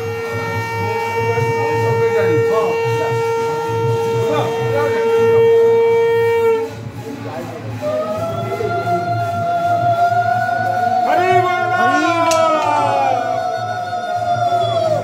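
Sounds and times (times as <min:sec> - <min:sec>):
conch shell blasts: 0:00.0 - 0:06.8.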